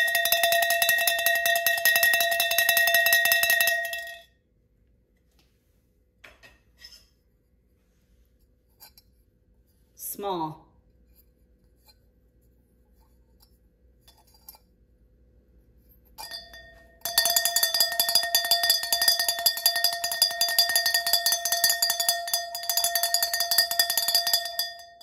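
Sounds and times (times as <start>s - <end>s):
metal bell clanging: 0.0s - 4.3s, 16.2s - 25.0s.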